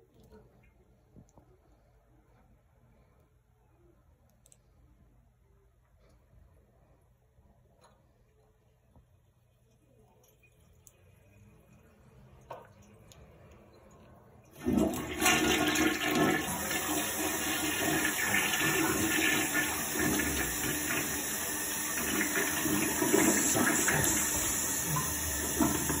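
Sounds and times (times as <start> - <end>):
toilet flushing: 14.5 - 26.0.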